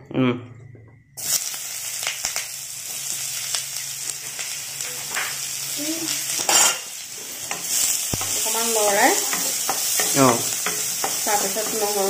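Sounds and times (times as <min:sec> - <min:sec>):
onions sizzling in hot fat: 0:01.2 - 0:12.0.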